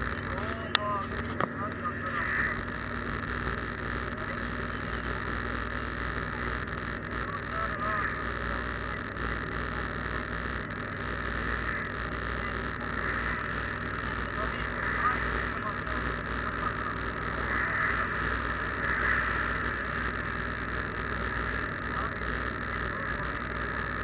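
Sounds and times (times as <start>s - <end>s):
car engine and tyres drone: 10.8s - 22.0s.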